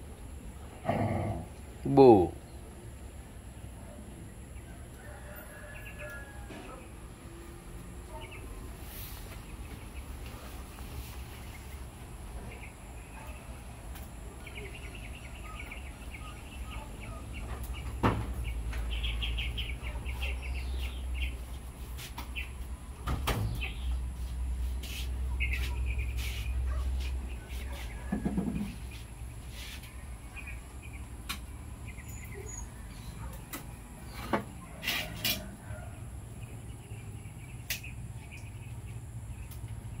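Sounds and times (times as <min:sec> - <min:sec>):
high chirping calls: 0:11.4 - 0:21.5, 0:25.2 - 0:31.2, 0:31.8 - 0:34.3.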